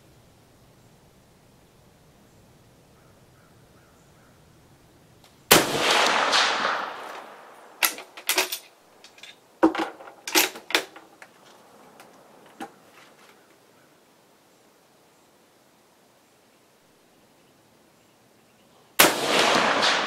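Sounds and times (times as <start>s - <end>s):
rifle shot echoing: 5.5s - 8.2s, 19.0s - 20.0s
rifle bolt metallic clicks: 6.0s - 11.3s.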